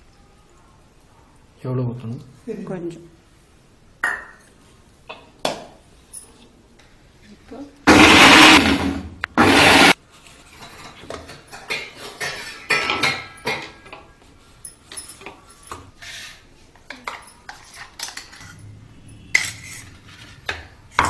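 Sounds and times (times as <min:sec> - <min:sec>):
electric mixer grinder running: 0:07.9 - 0:10.0
spoon scraping steel jar: 0:17.1 - 0:21.0.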